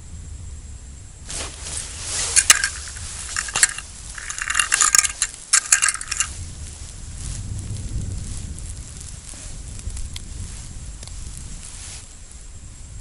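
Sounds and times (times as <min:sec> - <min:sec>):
fishing rod and line clicking: 0:01.7 - 0:06.3.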